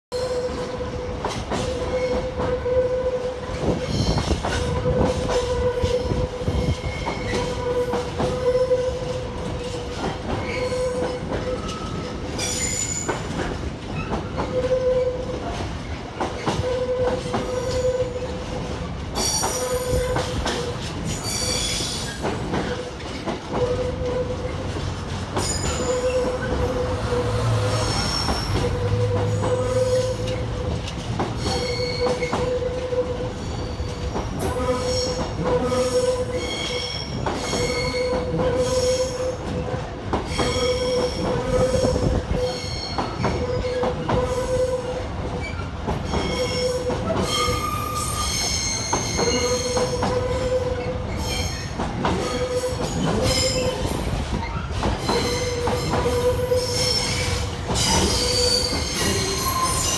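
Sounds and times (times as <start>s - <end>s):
freight train rumbling by: 0.1s - 59.9s
train wheel squeal: 0.1s - 59.9s
high wheel screeches: 25.4s - 30.5s, 40.3s - 59.9s.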